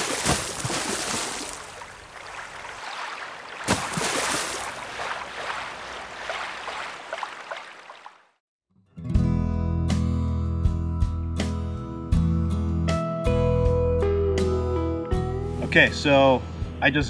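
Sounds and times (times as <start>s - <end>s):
water rushing and splashing: 0.0s - 8.4s.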